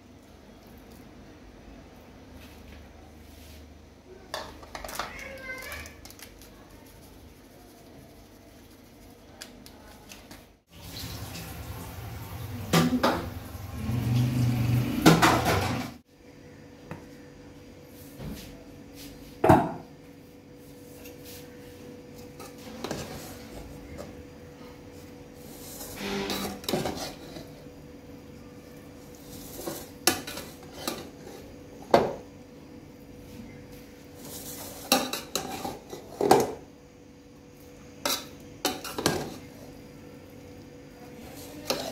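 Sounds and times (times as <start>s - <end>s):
metal spoons scraping a pot: 25.5s - 27.7s, 34.2s - 36.2s, 41.2s - 41.9s.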